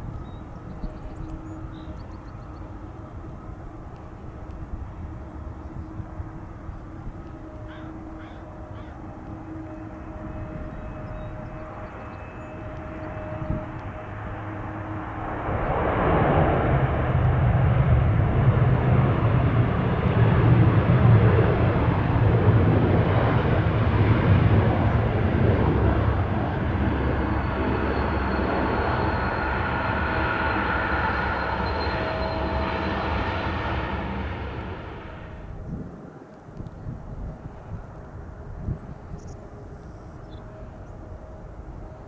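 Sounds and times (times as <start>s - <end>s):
jet engines rumbling: 0.0s - 42.0s
faint falling whine: 24.5s - 35.6s.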